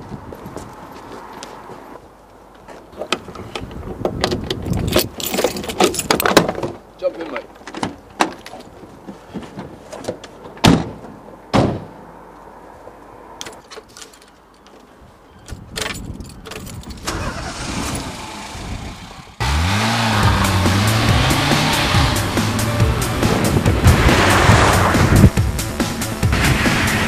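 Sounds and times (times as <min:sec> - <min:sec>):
clicks and rustles inside car: 0:03.0 - 0:10.6
car doors slamming: 0:10.6 - 0:12.0
car engine starting: 0:17.0 - 0:27.0.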